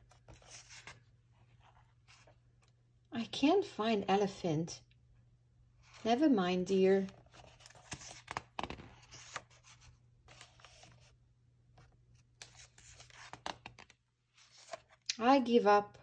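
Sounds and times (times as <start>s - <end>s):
book pages turning: 0.0s - 2.7s, 7.0s - 11.2s, 11.8s - 15.0s.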